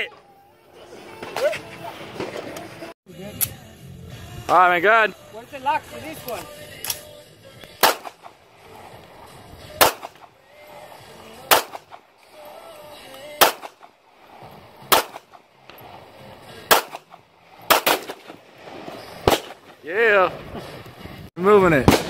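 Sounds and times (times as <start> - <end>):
pistol shots: 7.8 - 8.4, 9.8 - 10.3, 11.4 - 12.0, 13.4 - 13.9, 14.9 - 15.4, 16.7 - 18.4, 19.2 - 19.8, 21.8 - 22.0.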